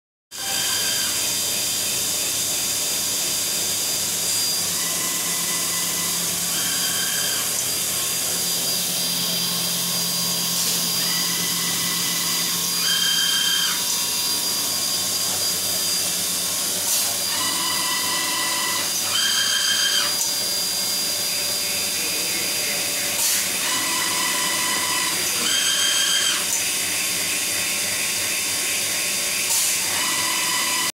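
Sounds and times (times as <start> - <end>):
servo drives whining: 4.0 - 20.3.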